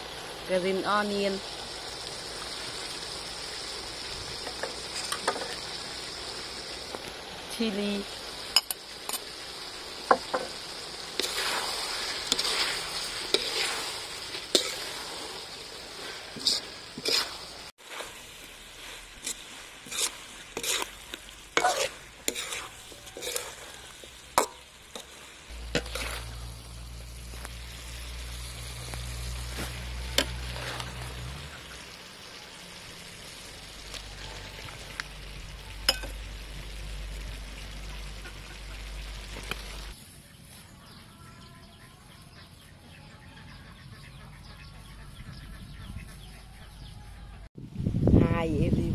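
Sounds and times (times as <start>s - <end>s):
food sizzling in hot oil: 0.0s - 40.0s
spatula scraping metal wok: 10.3s - 32.0s.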